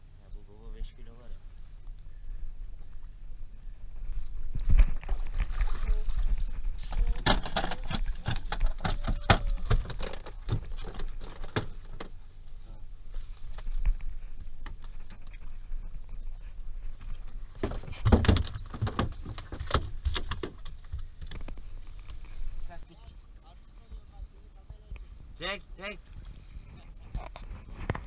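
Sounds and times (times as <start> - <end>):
steady low rumble: 0.0 - 8.2, 10.3 - 17.9.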